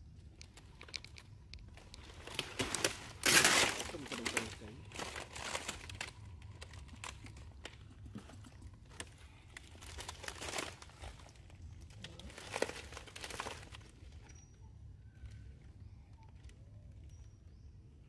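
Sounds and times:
rustling and crinkling: 0:00.0 - 0:17.8
scattered clicks: 0:00.3 - 0:03.5.

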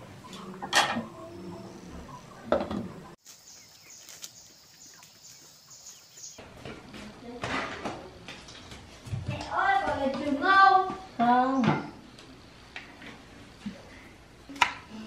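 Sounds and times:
faint chirps: 0:00.1 - 0:06.4.

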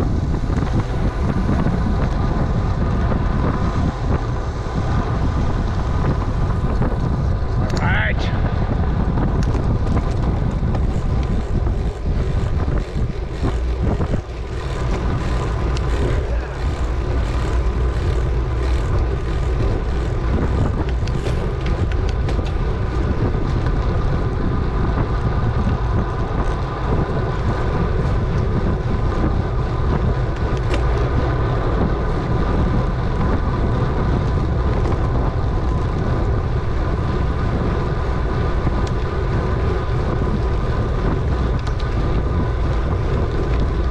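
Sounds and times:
steady hum: 0:00.0 - 0:31.8
low rumble: 0:00.0 - 0:43.9
wind buffeting microphone: 0:00.0 - 0:43.9.

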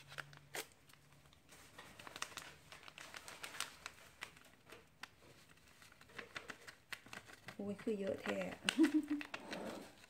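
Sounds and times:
foil sachet crinkling: 0:00.0 - 0:10.0.

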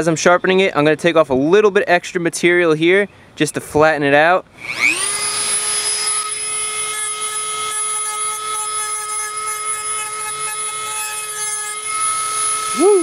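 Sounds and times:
rotary tool grinding metal: 0:04.6 - 0:13.0.

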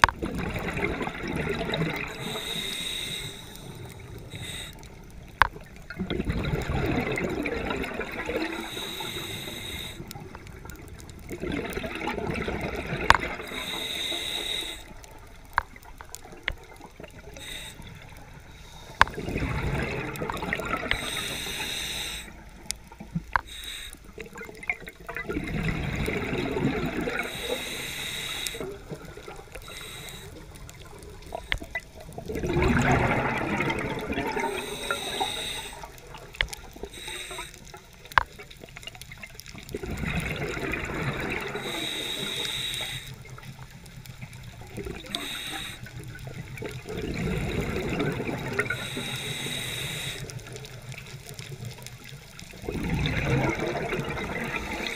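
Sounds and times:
exhaled bubbles gurgling: 0:00.0 - 0:54.9
diver inhaling through regulator: 0:02.0 - 0:05.0, 0:08.5 - 0:10.2, 0:13.4 - 0:15.0, 0:17.4 - 0:19.2, 0:20.8 - 0:22.5, 0:23.4 - 0:24.2, 0:27.1 - 0:31.6, 0:32.8 - 0:36.0, 0:36.9 - 0:37.7, 0:41.4 - 0:43.4, 0:45.0 - 0:46.1, 0:47.6 - 0:50.5.

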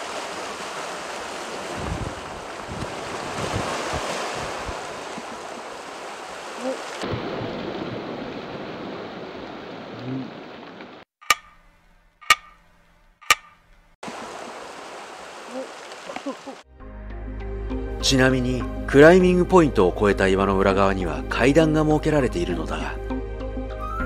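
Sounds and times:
waves washing on rocky shore: 0:00.0 - 0:10.0
wind on microphone: 0:01.6 - 0:05.4
sharp ringing clicks: 0:11.2 - 0:14.0.

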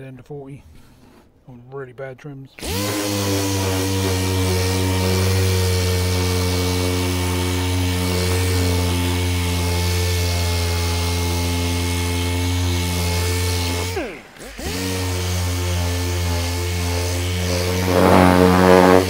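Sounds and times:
electric sander on plastic: 0:02.6 - 0:19.0.

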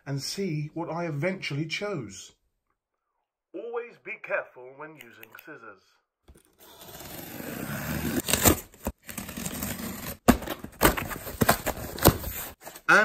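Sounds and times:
tape and cardboard ripping: 0:06.6 - 0:11.0.

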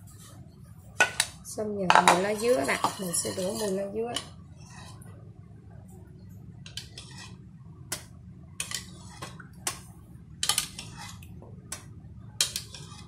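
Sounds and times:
metal spoon clinking on steel: 0:02.0 - 0:04.2.

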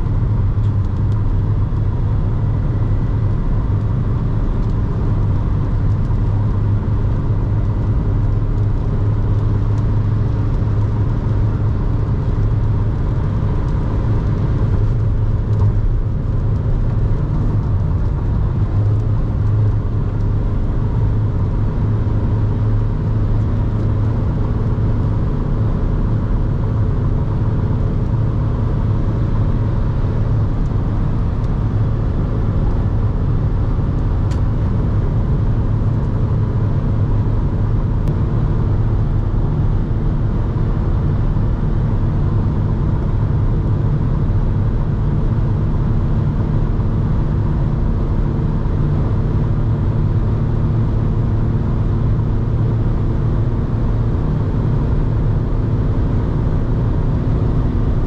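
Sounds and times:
diesel engine drone: 0:00.0 - 0:58.0
road and wind noise: 0:00.0 - 0:58.0.

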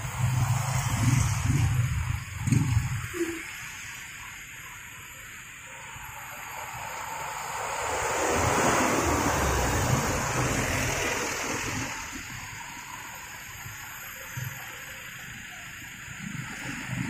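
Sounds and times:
passing traffic hiss: 0:00.0 - 0:17.0
truck driving past: 0:05.9 - 0:13.2.

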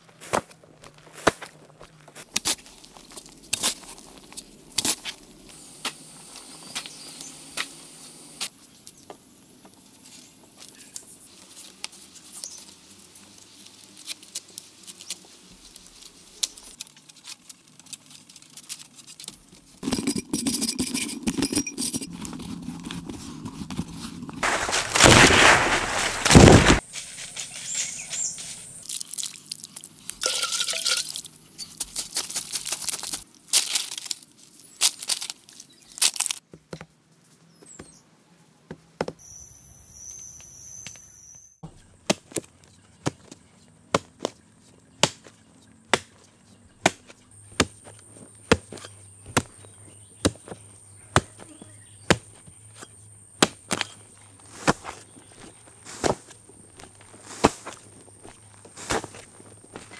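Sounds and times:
hoe chopping into dry soil: 0:24.4 - 0:26.8, 0:46.8 - 0:47.9, 0:48.5 - 0:51.4, 0:53.4 - 0:57.8.

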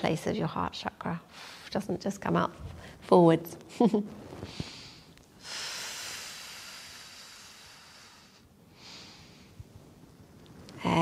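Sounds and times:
woman breathing: 0:04.4 - 0:09.7.

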